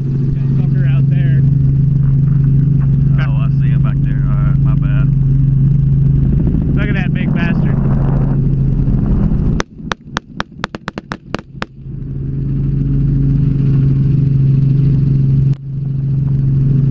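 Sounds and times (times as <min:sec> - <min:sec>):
helicopter engine and rotor drone: 0:00.0 - 0:16.9
rapid gunshots: 0:09.6 - 0:11.8.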